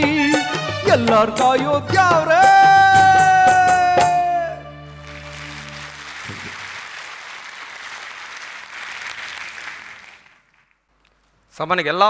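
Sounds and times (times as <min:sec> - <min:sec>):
audience applauding: 0:05.0 - 0:10.9.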